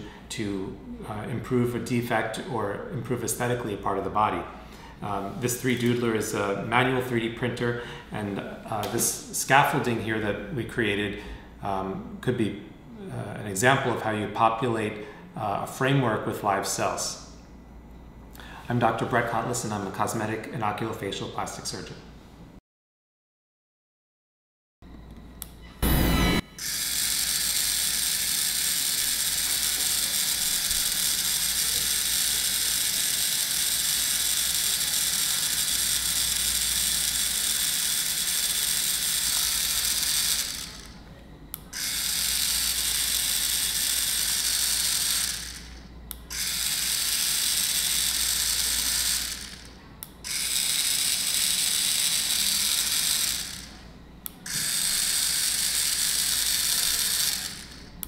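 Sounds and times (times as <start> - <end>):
printing pen motor whirring: 25.4 - 58.0.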